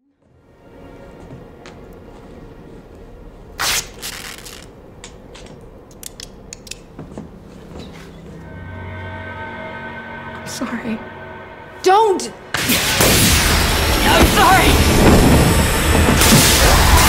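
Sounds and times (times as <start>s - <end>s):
loud hissing burst: 12.6s - 17.0s.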